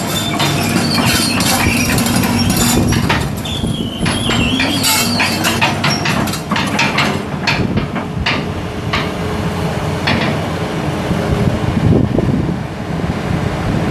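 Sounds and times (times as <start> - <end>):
sharp metal clanks: 0.0 - 9.2
excavator diesel engine running: 0.0 - 11.8.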